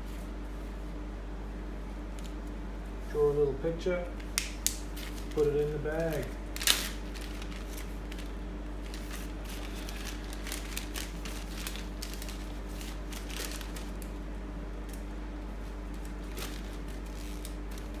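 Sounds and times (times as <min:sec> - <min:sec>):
low electrical hum: 0:00.0 - 0:18.0
plastic bag crinkling: 0:04.2 - 0:14.2, 0:15.7 - 0:18.0.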